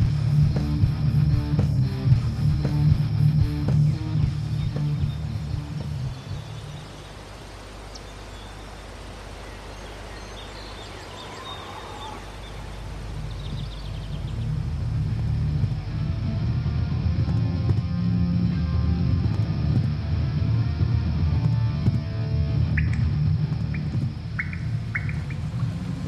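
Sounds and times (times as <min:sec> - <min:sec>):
music: 0:00.0 - 0:06.8, 0:13.5 - 0:26.0
low rumble: 0:00.0 - 0:07.0, 0:11.4 - 0:26.0
steady background hiss: 0:00.0 - 0:26.0
high bird chirps: 0:07.9 - 0:14.6, 0:22.7 - 0:23.0, 0:23.7 - 0:25.6.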